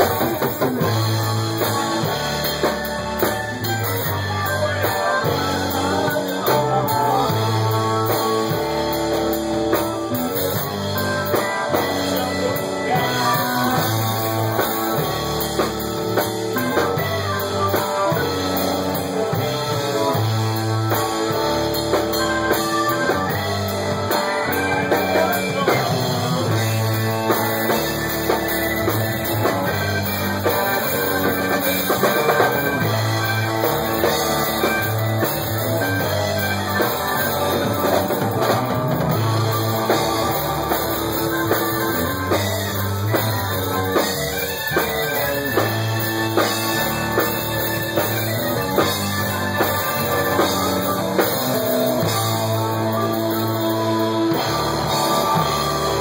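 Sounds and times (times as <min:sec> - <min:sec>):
bass line: 0:00.0 - 0:56.0
drum kit with cymbals: 0:00.0 - 0:56.0
electric guitar: 0:00.0 - 0:56.0.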